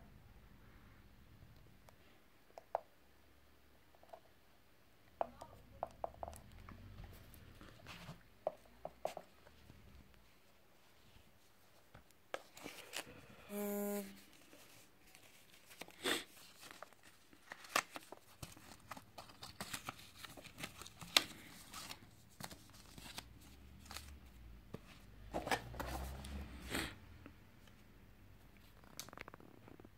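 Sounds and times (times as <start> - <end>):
brief buzz: 13.5 - 14.2.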